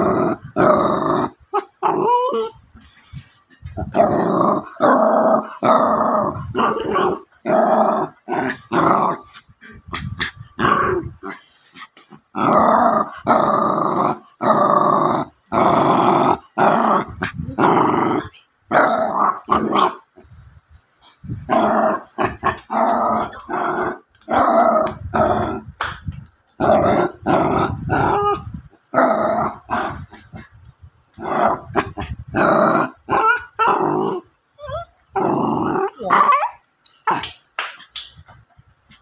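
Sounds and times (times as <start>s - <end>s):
puppy growling: 3.7s - 20.0s, 21.3s - 25.9s, 26.5s - 30.5s, 31.2s - 37.3s.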